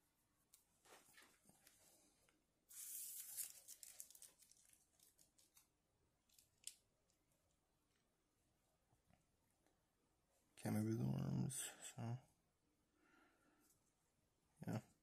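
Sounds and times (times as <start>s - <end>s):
plastic figure rustling in hands: 0.0s - 6.8s.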